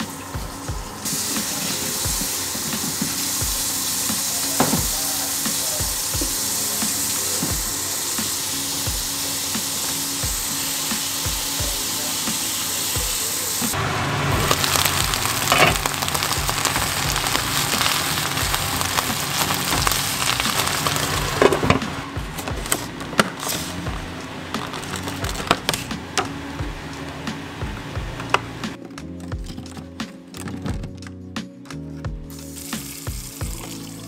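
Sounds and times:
kale sizzling in a pan: 0.0 - 22.0, 23.3 - 23.9, 32.3 - 34.0.

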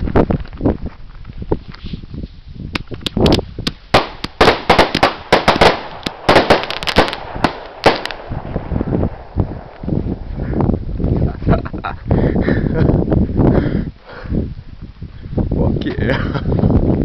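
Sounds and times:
firework shells bursting: 2.7 - 9.9.

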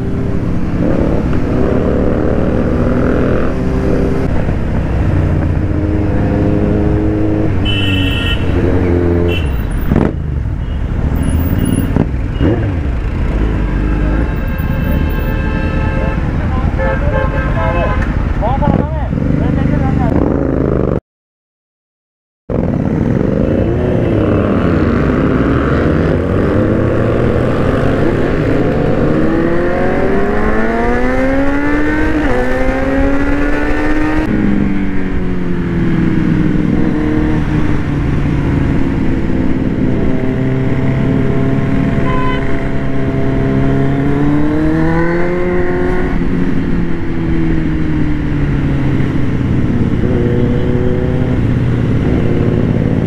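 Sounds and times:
motorcycle engine accelerating: 22.5 - 53.0.

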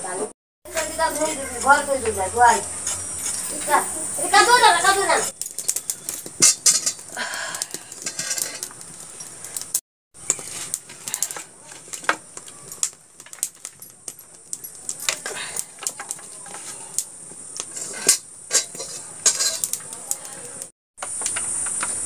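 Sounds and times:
fire crackling: 0.0 - 22.0
crickets chirring: 0.7 - 10.4, 12.0 - 22.0
firewood sticks clicking and knocking: 0.7 - 22.0.

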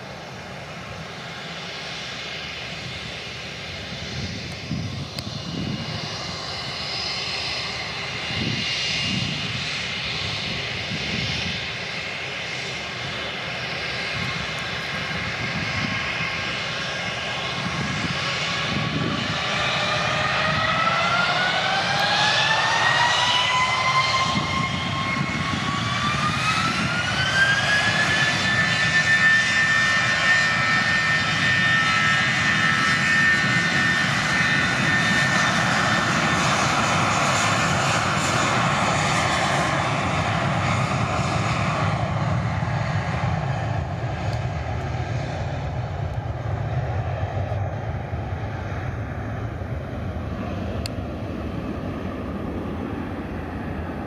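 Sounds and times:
jet engines spooling up: 0.0 - 54.0.

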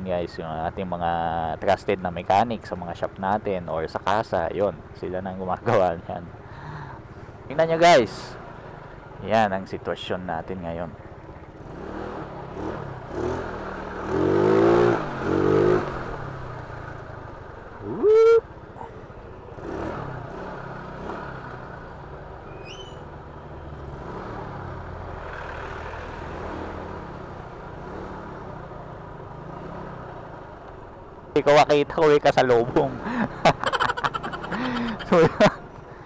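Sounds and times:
traffic: 0.0 - 36.0
scooter engine running: 33.5 - 35.4.

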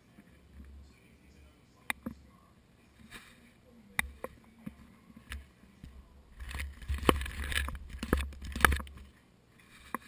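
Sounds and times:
camera handling noise: 6.4 - 9.0.

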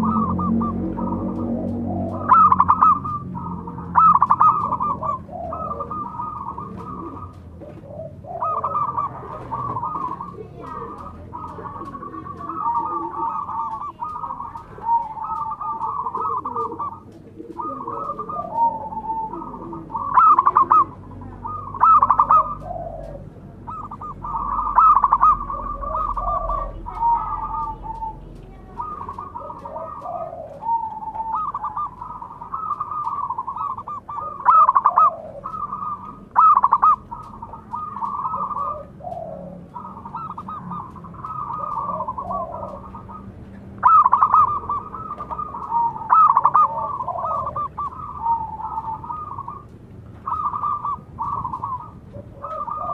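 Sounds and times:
dove cooing: 0.0 - 52.9.

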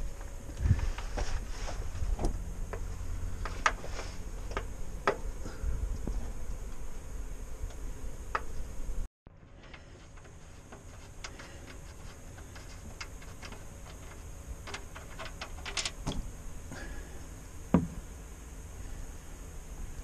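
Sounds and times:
loud knock: 17.7 - 18.0.

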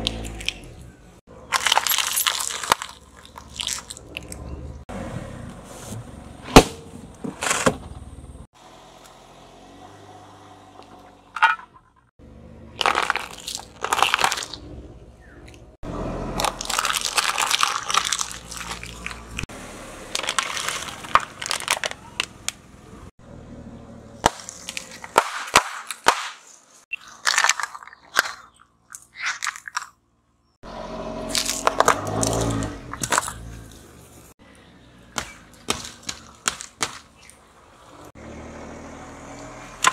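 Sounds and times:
tyres crushing objects: 1.5 - 4.4, 12.8 - 14.7, 16.4 - 19.5, 20.1 - 22.6, 24.2 - 30.0, 31.3 - 33.9, 35.1 - 37.4.

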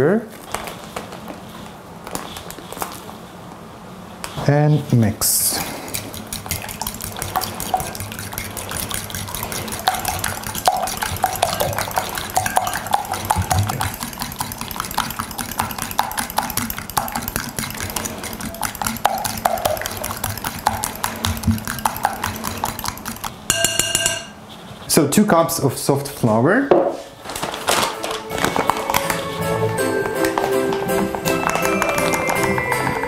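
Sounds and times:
utensil scraping a bowl: 5.6 - 24.9.

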